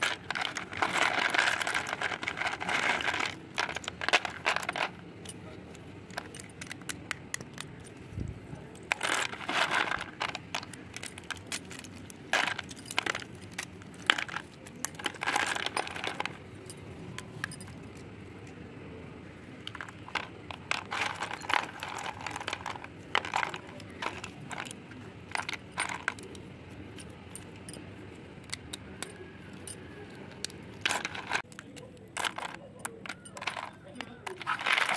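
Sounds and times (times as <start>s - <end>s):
pencil sticks clattering in tub: 0.0s - 5.1s, 8.8s - 16.4s, 19.6s - 26.3s, 30.4s - 34.9s.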